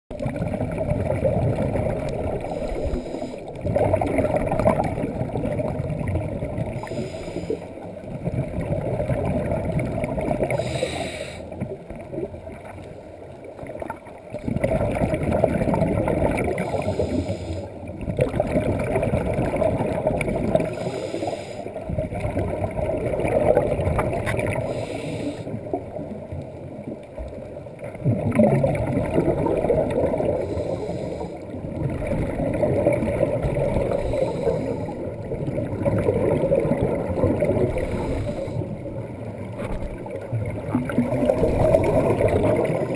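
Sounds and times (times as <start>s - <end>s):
bubbling exhalation underwater: 0.1s - 7.1s, 8.1s - 11.0s, 14.3s - 17.1s, 18.0s - 20.9s, 28.0s - 30.6s, 31.6s - 42.9s
regulator inhalation hiss: 2.5s - 3.5s, 6.8s - 7.7s, 10.6s - 11.5s, 16.7s - 17.7s, 20.7s - 21.7s, 24.7s - 25.6s, 30.4s - 31.4s.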